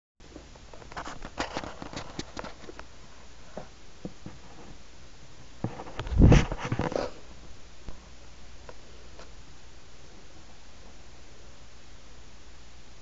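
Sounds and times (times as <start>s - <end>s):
bump and rustle: 5.6s - 7.2s.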